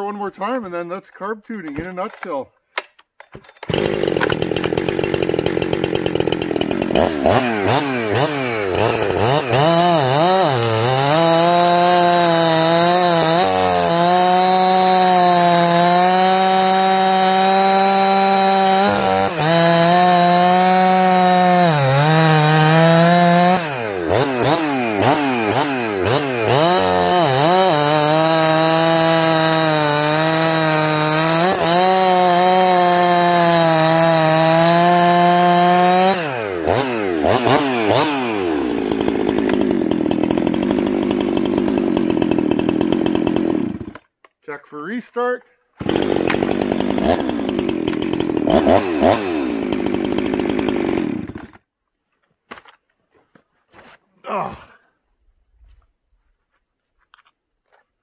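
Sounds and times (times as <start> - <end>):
chainsaw cutting a log: 3.6 - 44.1, 45.8 - 51.6.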